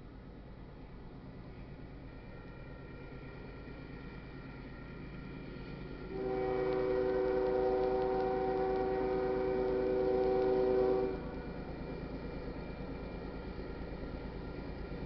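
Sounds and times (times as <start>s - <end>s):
locomotive air horn blast: 6.1s - 11.3s.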